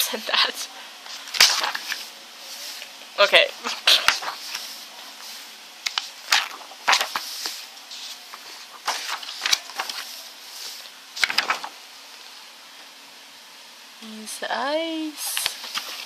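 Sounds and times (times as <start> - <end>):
book pages turning: 1.1 - 2.9, 3.6 - 11.8, 15.4 - 16.0
stiff paper snapping: 1.3 - 2.0, 5.8 - 7.6, 11.2 - 11.7.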